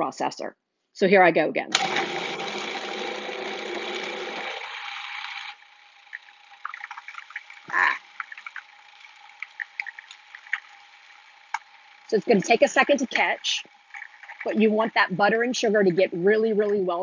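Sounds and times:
food processor running: 1.7s - 14.6s.

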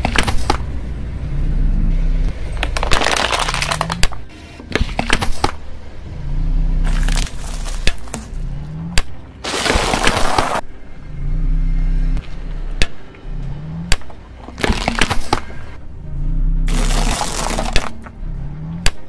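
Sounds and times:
car rumbling: 0.0s - 19.0s
car tyre crushing matchboxes: 2.5s - 5.6s, 6.8s - 10.6s, 13.9s - 15.6s, 16.7s - 18.2s.

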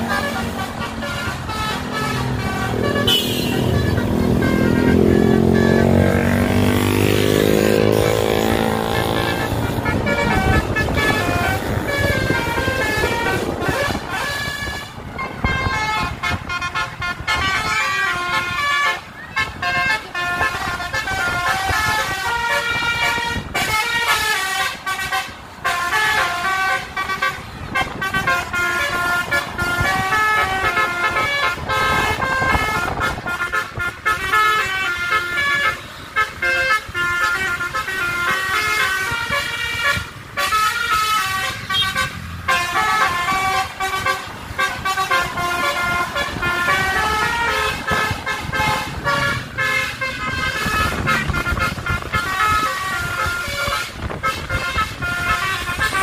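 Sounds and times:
bus horn playing a melody: 0.0s - 56.0s
engine and road noise: 0.0s - 56.0s.

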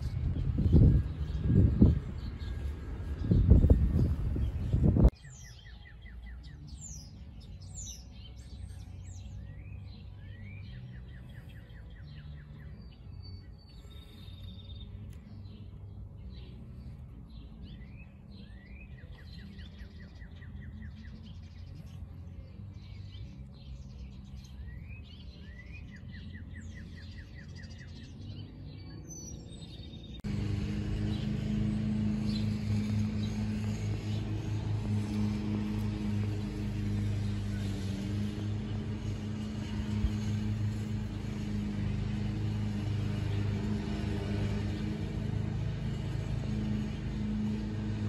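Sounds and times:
low steady rumble: 0.0s - 5.2s, 28.0s - 48.0s
songbirds chirping: 0.0s - 48.0s.

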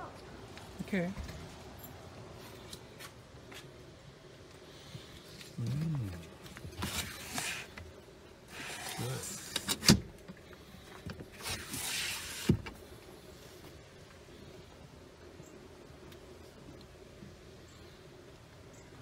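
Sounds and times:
sliding window scraping in track: 6.8s - 7.8s, 8.5s - 10.0s, 11.3s - 12.7s.

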